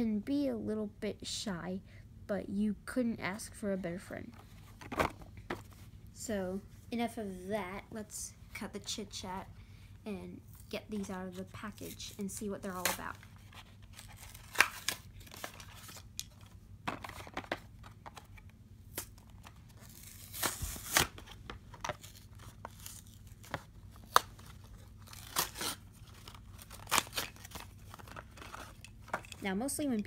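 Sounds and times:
plastic packaging tearing and crinkling: 11.8 - 16.4, 18.9 - 29.3
packaging rustling: 12.7 - 29.4.

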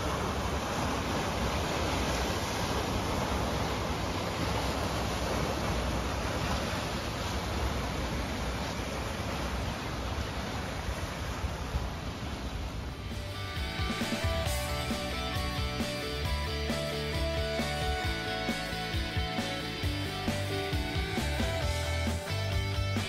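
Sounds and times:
small waves on rocky shore: 0.0 - 14.8.

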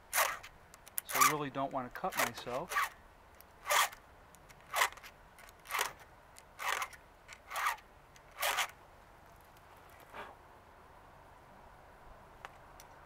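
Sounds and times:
file rasping on chainsaw chain: 0.1 - 1.4, 3.6 - 4.0.

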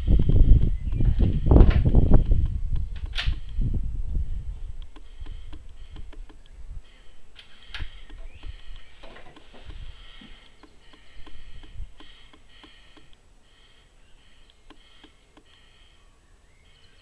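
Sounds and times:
birds chirping: 0.0 - 17.0
air rifle bolt click: 1.6 - 3.6, 14.4 - 15.7.

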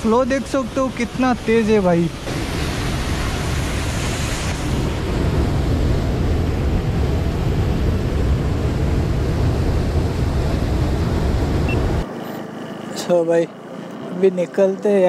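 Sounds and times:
waterfall rushing: 0.0 - 5.6.

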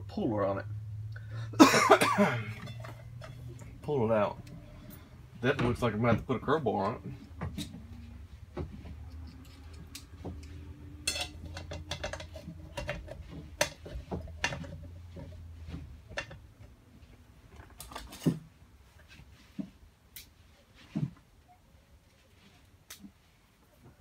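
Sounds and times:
metal tools clinking on metal: 2.3 - 3.8, 9.1 - 14.7.

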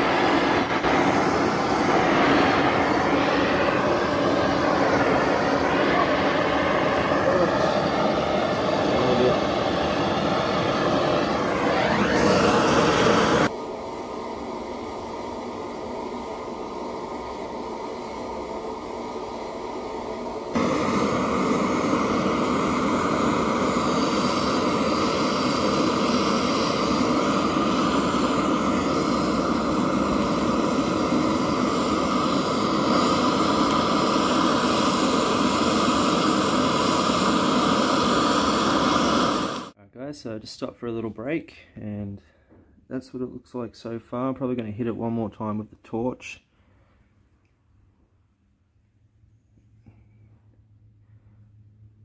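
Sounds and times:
blowtorch flame rushing: 0.0 - 39.8.

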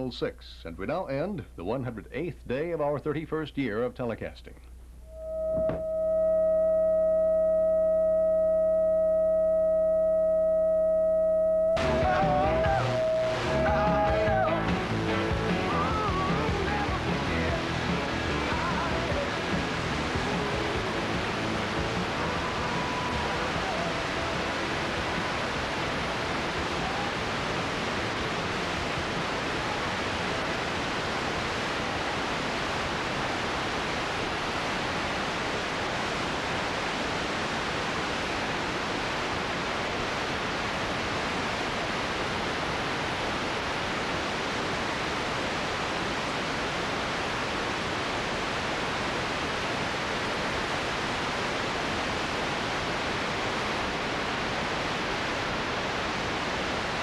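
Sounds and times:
television static hiss: 0.0 - 57.0.

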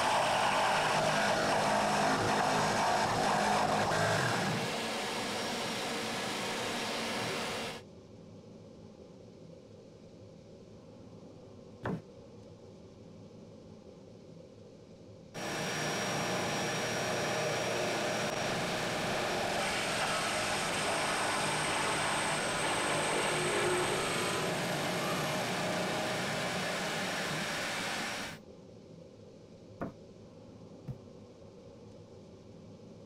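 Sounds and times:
drill press boring into wood: 0.0 - 7.8, 15.4 - 28.4
light knock: 11.8 - 12.0.

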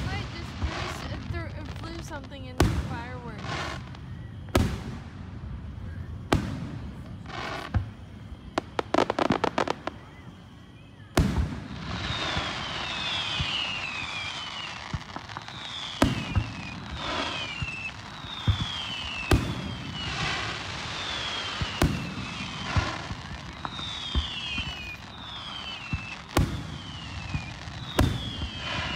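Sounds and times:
fireworks bangs: 0.0 - 28.9
fireworks crackling: 0.0 - 28.9
high falling whistles: 7.4 - 28.9.

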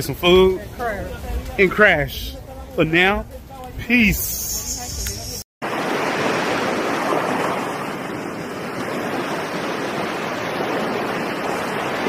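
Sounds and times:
ocean surf rushing: 5.6 - 12.0.

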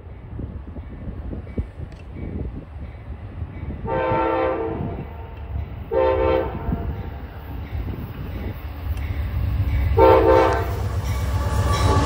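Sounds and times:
low rumble of train: 0.0 - 12.0
train air horn blasts: 3.8 - 7.0, 10.0 - 12.0.

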